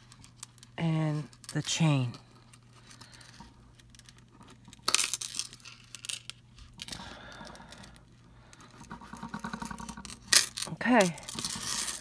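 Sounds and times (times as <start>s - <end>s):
metal chain clinking and scraping: 9.2s - 12.0s.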